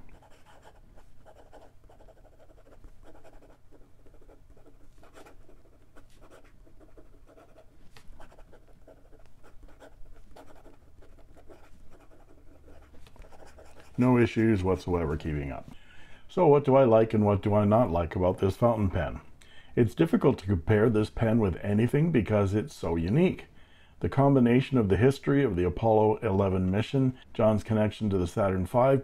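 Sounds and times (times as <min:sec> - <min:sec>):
pen scratching on paper: 0:00.0 - 0:14.2.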